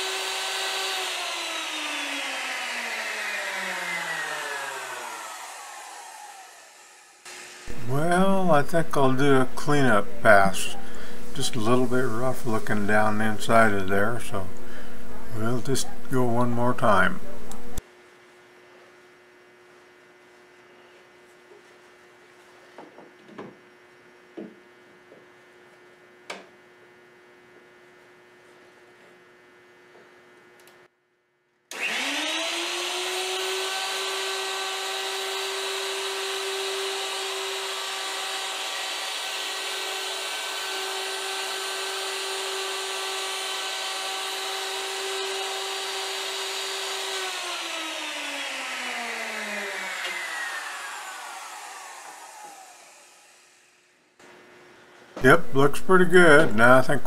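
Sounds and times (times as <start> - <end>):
electric router whining: 0.0 - 8.2, 31.7 - 53.8.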